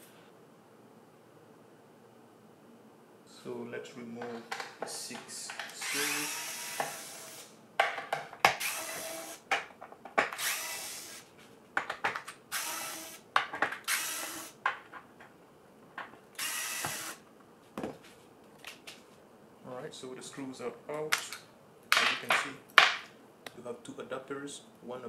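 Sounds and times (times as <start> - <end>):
power screwdriver bursts: 5.7 - 7.5, 8.5 - 9.4, 10.3 - 11.2, 12.5 - 13.2, 13.8 - 14.6, 16.4 - 17.2.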